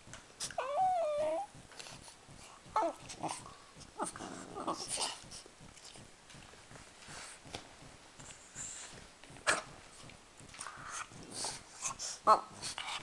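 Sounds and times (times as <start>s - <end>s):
dogs scuffling: 0.0s - 13.0s
dog whimpering: 0.5s - 1.5s, 2.8s - 3.4s
dog whining: 0.5s - 1.6s, 2.8s - 3.4s
dog breathing noisily: 8.2s - 9.1s, 10.6s - 13.0s.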